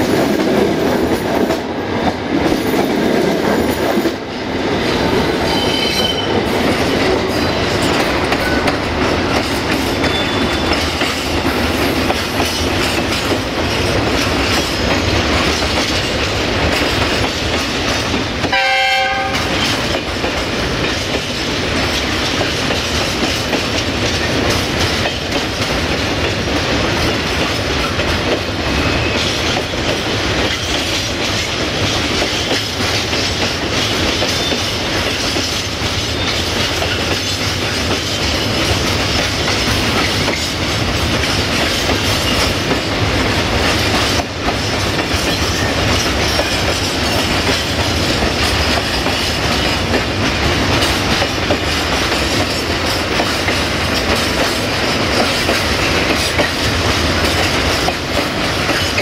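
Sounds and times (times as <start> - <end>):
train wheels clattering over rail joints: 0.0 - 59.0
train horn blast: 18.5 - 19.6.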